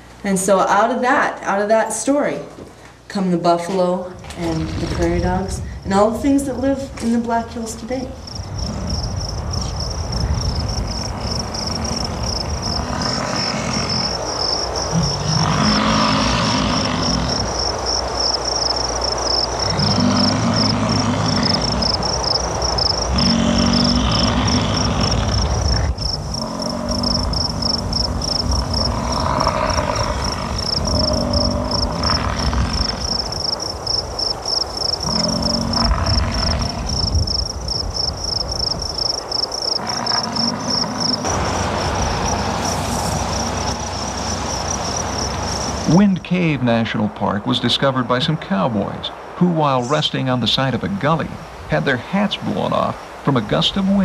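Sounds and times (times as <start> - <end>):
insects chirring: 4.2 - 54.0
bison bellowing: 8.6 - 17.6, 19.6 - 33.4, 35.0 - 37.3, 39.7 - 46.0.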